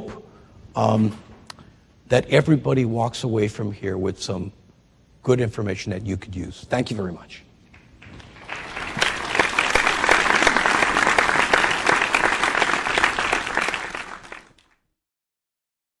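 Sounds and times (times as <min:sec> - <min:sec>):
audience applauding: 0:07.8 - 0:14.8.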